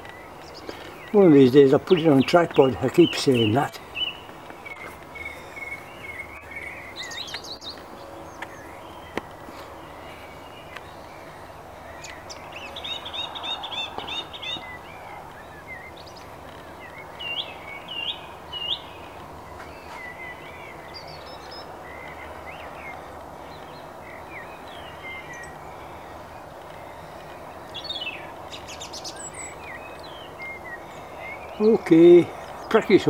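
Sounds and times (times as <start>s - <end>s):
songbirds singing: 0.0s - 33.0s.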